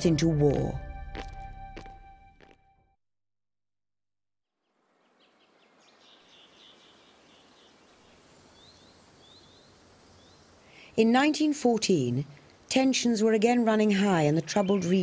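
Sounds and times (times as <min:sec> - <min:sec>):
steady background hiss: 0:04.7 - 0:14.8
birds chirping: 0:05.1 - 0:10.9, 0:14.1 - 0:15.0.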